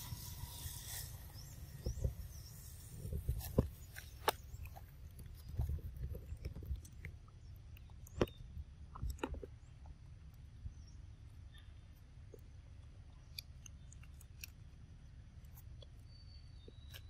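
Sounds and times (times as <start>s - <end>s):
monkeys chewing soft fruit: 0.0s - 17.0s.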